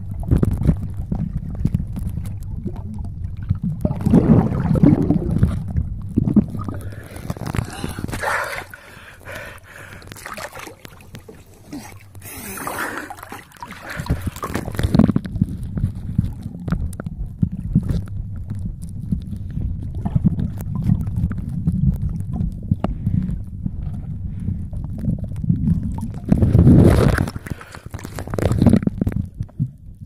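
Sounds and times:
water sloshing and splashing: 0.0s - 24.0s, 24.9s - 29.6s
muffled underwater rumble: 0.0s - 30.0s
underwater knocks and gurgles: 0.0s - 30.0s.

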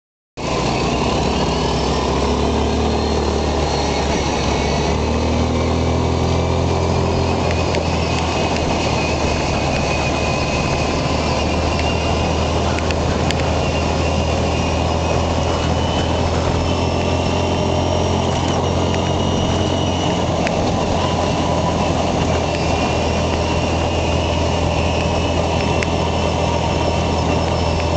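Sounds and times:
quad bike engine running: 0.4s - 27.9s
rushing ride noise: 0.4s - 27.9s.

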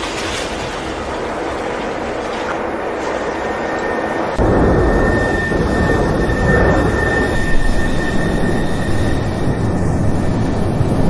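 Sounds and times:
thin high whine: 2.6s - 11.0s
lava fountain roaring: 4.4s - 11.0s.

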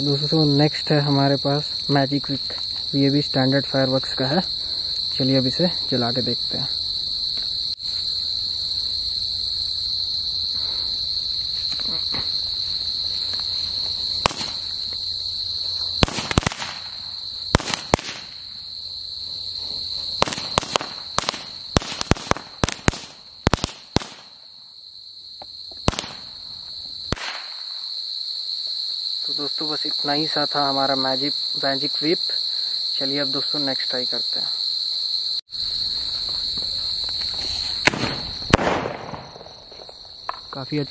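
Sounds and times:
crickets chirping: 0.0s - 40.9s
firecracker sharp cracks: 14.2s - 14.7s, 16.0s - 18.5s, 20.2s - 24.4s, 25.8s - 26.4s, 27.1s - 27.8s, 37.8s - 40.4s.

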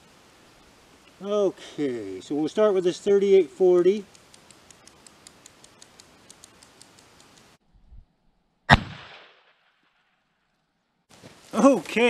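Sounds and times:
faint quick ticking: 4.0s - 7.6s
rifle shot: 8.7s - 9.7s.

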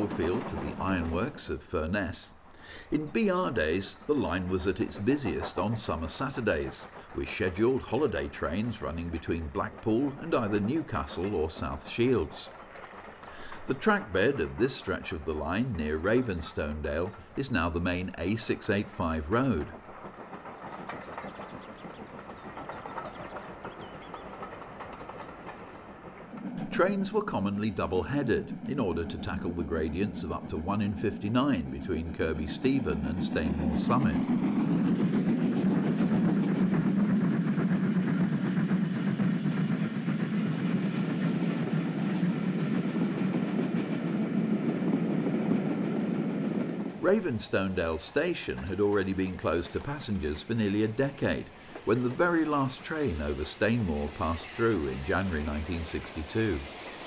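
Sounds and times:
steam train running: 0.0s - 57.0s.

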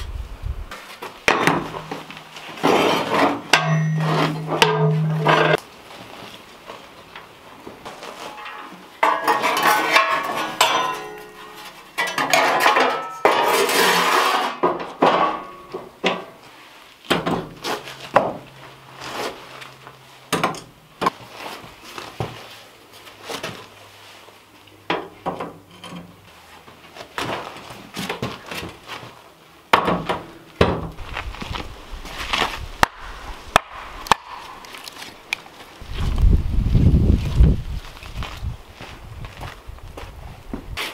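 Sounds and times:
metal stove parts clanking: 3.3s - 5.6s, 8.3s - 16.3s.

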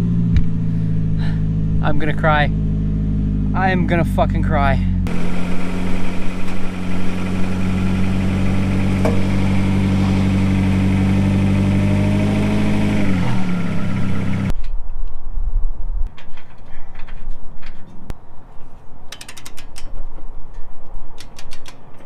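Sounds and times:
car engine idling and shutting off: 0.0s - 14.5s.

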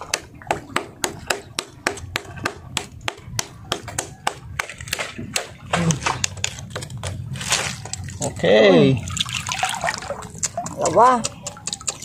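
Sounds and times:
metal bar tapping oyster shells: 10.3s - 12.0s.

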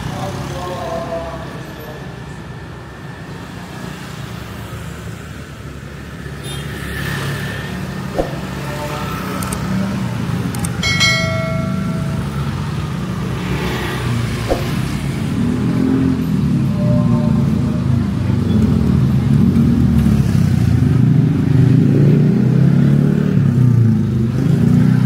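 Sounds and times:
sharp knocks: 8.2s - 8.6s, 14.4s - 15.0s
short ringing tone: 10.8s - 13.0s.

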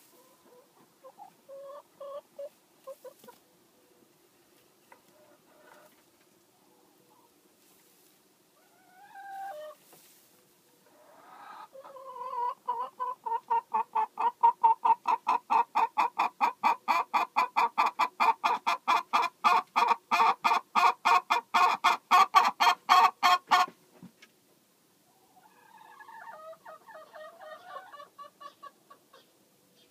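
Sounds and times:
hen clucking: 0.0s - 4.0s, 4.8s - 7.4s, 8.6s - 23.8s, 25.1s - 29.9s.

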